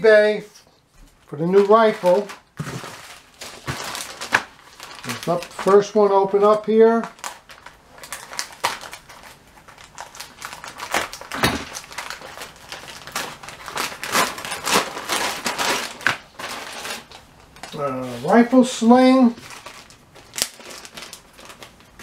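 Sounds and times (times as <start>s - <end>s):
plastic bag rustling: 1.0s - 22.0s
plastic mailer crinkling: 1.2s - 22.0s.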